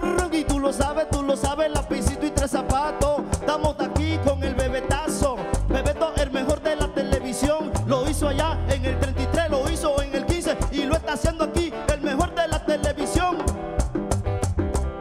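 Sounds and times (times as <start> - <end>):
man singing lead vocal: 0.0 - 13.6
fast hand drum rhythm: 0.0 - 15.0
live latin dance band: 0.0 - 15.0.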